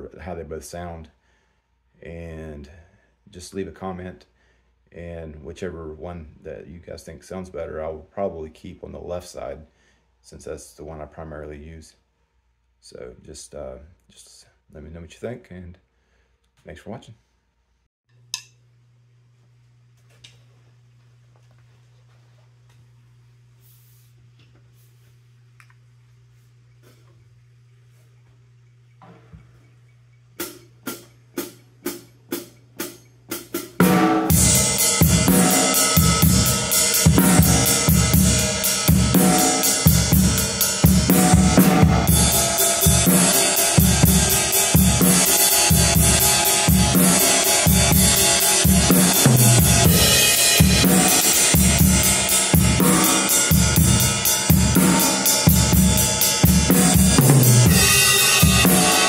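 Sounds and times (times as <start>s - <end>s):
drum kit playing rock groove: 30.4s - 59.0s
ride cymbals ringing: 34.3s - 59.0s.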